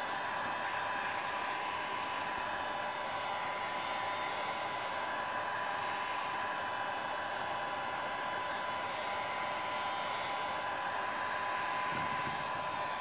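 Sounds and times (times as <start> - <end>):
fan motor whine: 0.0 - 13.0
heat gun blowing air: 0.0 - 13.0.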